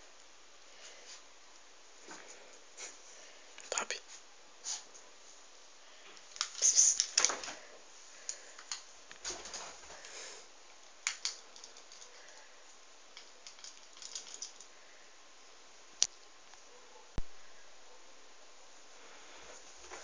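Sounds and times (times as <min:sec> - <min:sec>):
claws ticking on tile floor: 0:11.0 - 0:14.7.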